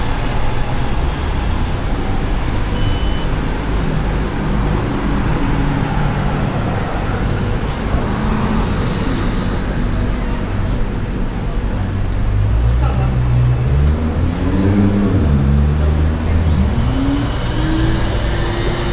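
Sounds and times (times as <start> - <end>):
road traffic rumble: 0.0 - 18.9
short high beep: 2.7 - 3.4.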